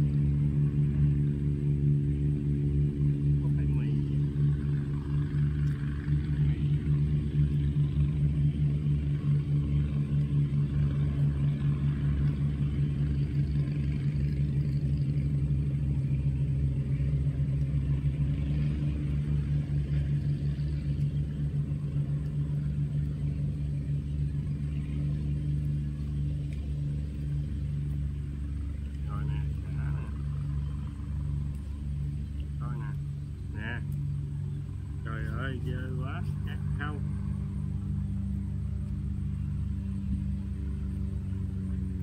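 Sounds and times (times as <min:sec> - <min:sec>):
engine running: 0:00.0 - 0:42.0.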